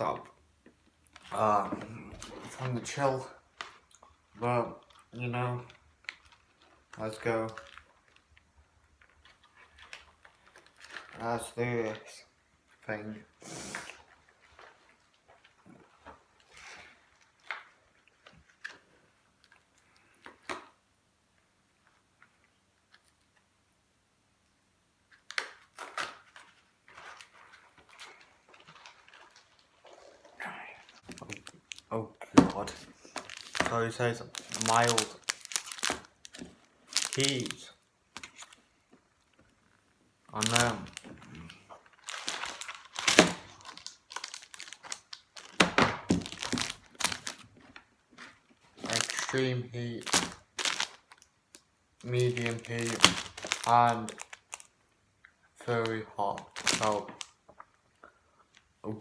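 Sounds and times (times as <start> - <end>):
packaging rustling: 1.0 - 12.0, 25.1 - 54.8, 55.7 - 57.4.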